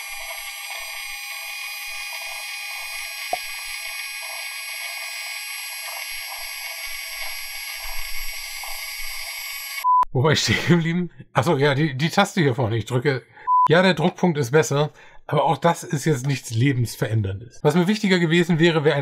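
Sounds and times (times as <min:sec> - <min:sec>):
radio static hiss: 0:00.0 - 0:09.8.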